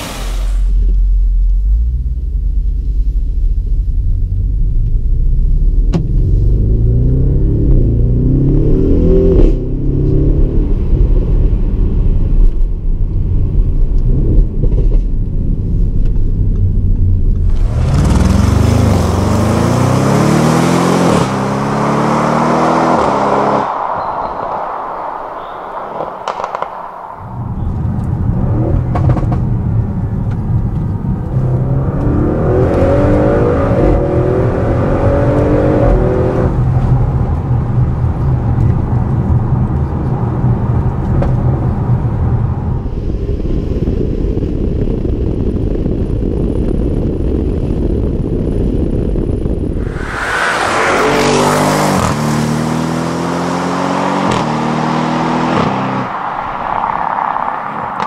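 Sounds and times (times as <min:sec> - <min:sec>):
car engine accelerating hard: 0:17.2 - 0:41.1, 0:49.8 - 0:58.0
wind noise rushing: 0:17.4 - 0:29.9, 0:45.1 - 0:54.2.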